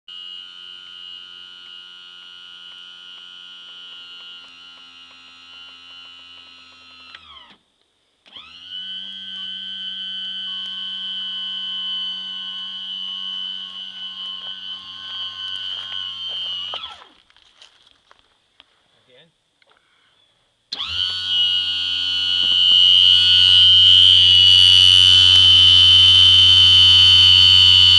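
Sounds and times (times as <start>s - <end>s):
trim motor whining: 0.1s - 7.6s, 8.2s - 17.2s, 20.7s - 27.9s.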